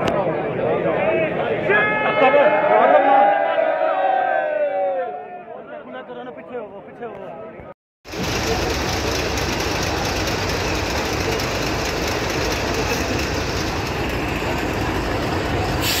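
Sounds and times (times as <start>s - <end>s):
bus engine rumbling: 8.1s - 16.0s.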